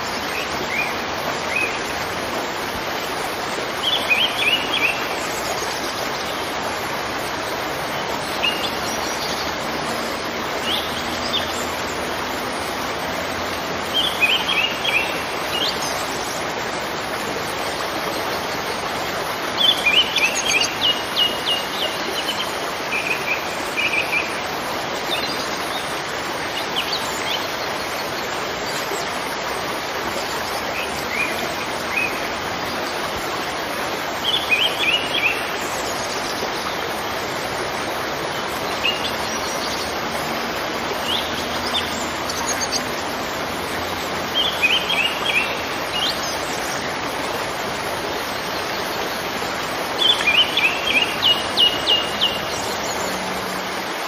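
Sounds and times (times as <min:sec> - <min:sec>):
flowing water rushing: 0:00.0 - 0:54.0
small birds chirping: 0:37.8 - 0:47.0, 0:47.8 - 0:54.0.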